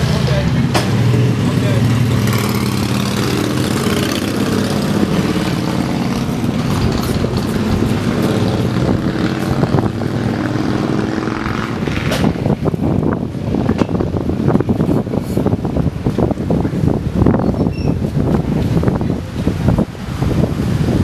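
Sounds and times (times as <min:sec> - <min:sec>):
loud low mechanical drone: 0:00.0 - 0:15.1.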